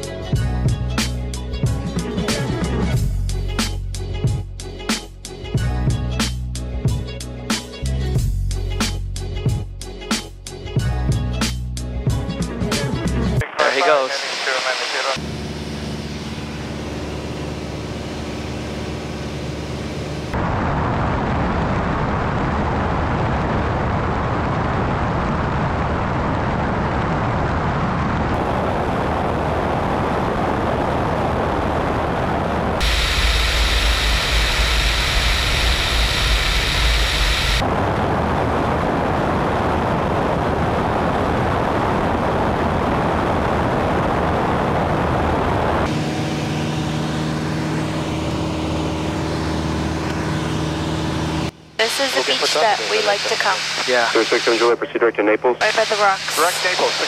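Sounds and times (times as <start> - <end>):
propeller airplane engine drone: 13.4 - 57.0
airflow noise: 32.7 - 38.6.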